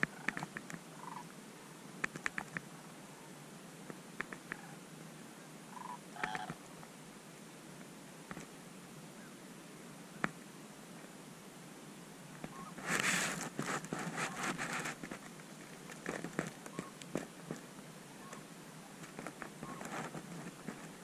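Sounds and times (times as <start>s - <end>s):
rustling of dry stalks: 0.0s - 21.0s
clicks: 3.9s - 4.6s.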